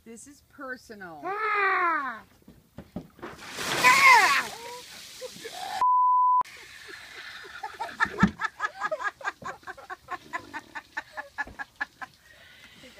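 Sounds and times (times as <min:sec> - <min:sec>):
short bleep tone: 0:05.8 - 0:06.4
woman laughing hard: 0:07.1 - 0:12.1.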